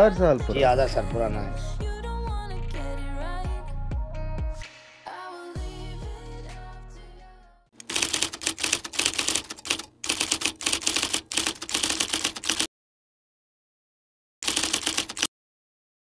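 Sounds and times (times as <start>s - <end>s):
music: 0.0s - 7.8s
typewriter keystrokes clattering: 7.8s - 12.7s, 14.4s - 15.3s.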